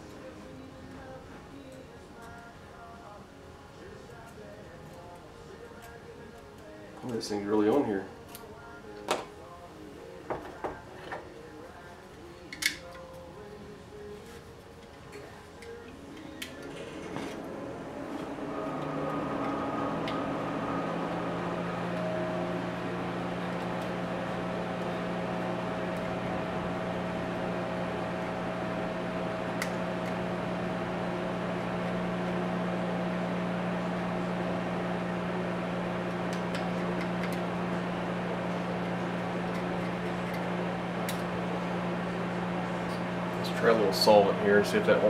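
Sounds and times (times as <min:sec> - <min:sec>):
electric motor hum: 0:15.6 - 0:45.0.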